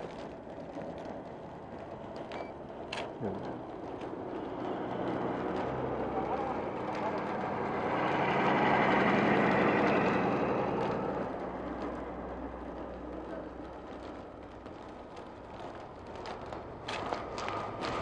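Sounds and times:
car driving past on snow: 4.2 - 14.1.

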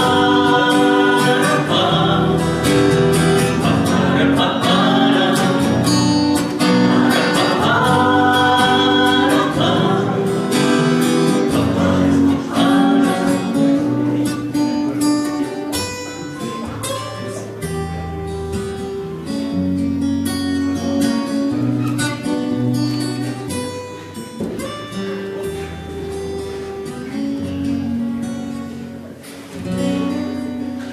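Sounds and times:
group singing together: 0.0 - 14.6
acoustic guitar strumming: 0.0 - 30.9.

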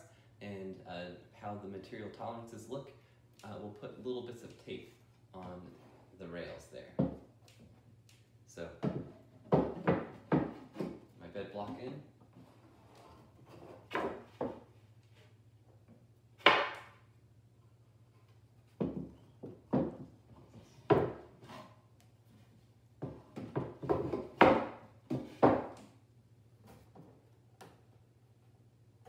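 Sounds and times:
wooden knocks and clunks: 6.9 - 7.3, 8.8 - 12.1, 13.5 - 14.7, 18.7 - 21.5, 23.0 - 25.9.

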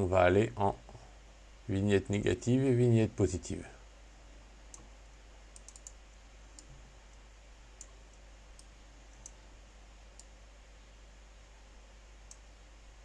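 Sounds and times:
low steady hum: 0.0 - 13.0
faint computer mouse clicks: 5.5 - 6.0, 7.8 - 9.4, 12.3 - 12.5.

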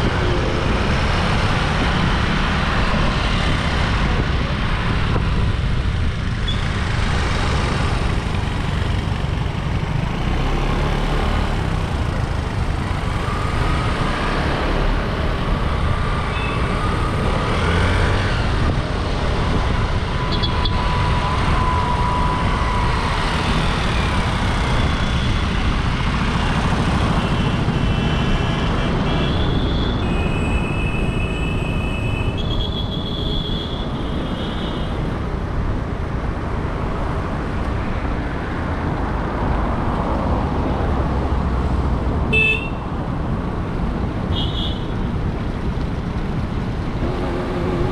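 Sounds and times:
wind rushing over microphone: 0.0 - 6.4, 13.1 - 30.1
scooter road noise: 0.0 - 47.9.

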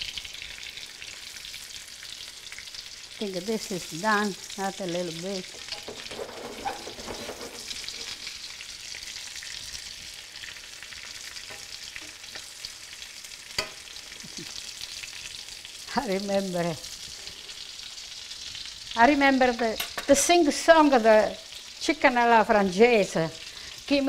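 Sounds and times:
cutlets sizzling in oil: 0.0 - 24.0.

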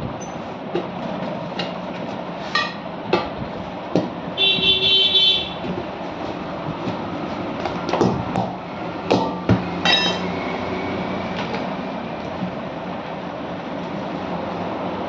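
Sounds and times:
steady low hum: 0.0 - 15.0
tyre iron knocking on metal: 7.8 - 10.3.

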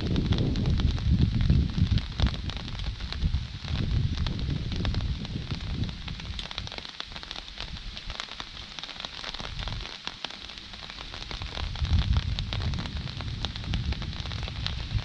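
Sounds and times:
rain drops ticking: 0.0 - 15.0
low rumble: 11.5 - 15.0.

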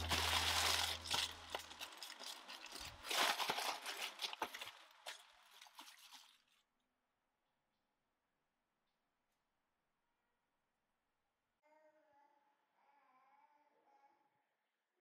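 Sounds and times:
plastic bag crinkling: 0.0 - 6.6.

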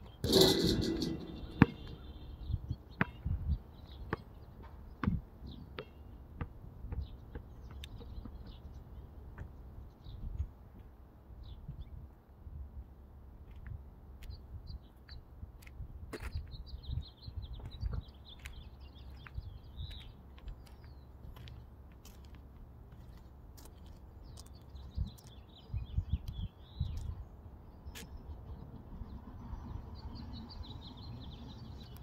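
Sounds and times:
small birds chirping: 0.0 - 10.5, 14.2 - 32.0.

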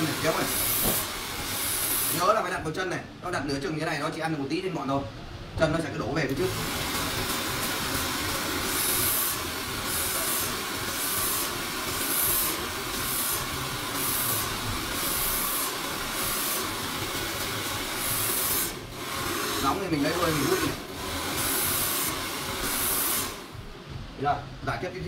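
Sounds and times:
hair dryer blowing: 0.0 - 2.4, 6.3 - 23.6.

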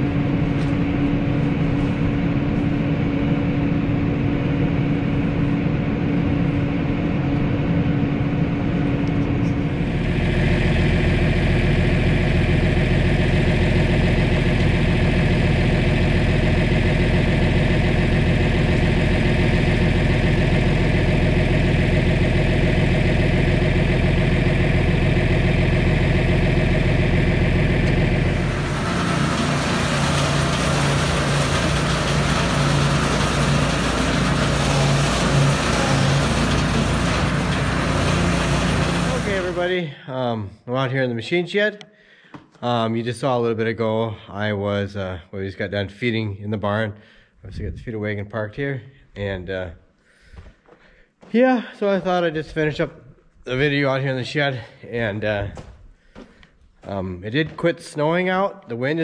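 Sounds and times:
rough noisy machine: 0.0 - 39.8
tractor engines running: 8.2 - 39.8.

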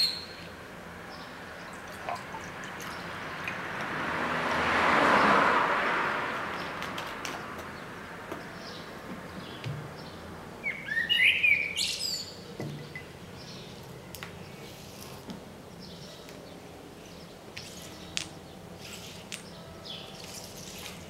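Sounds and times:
blackbird singing: 0.0 - 0.5, 8.6 - 13.8.

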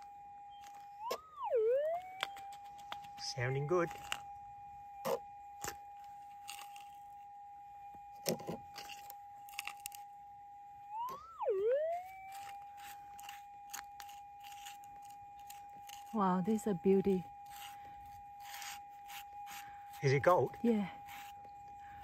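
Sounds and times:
metal detector threshold tone: 10.9 - 22.0.

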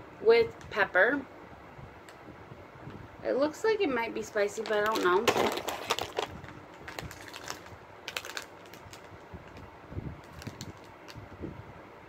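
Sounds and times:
plastic wrapper crinkling: 4.6 - 11.2.

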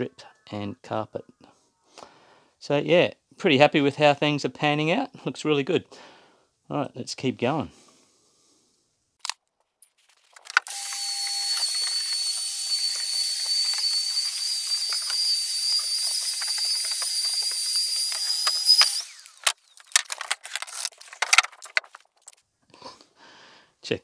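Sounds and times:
small clicks: 10.3 - 22.4
vacuum cleaner running: 10.7 - 19.5.

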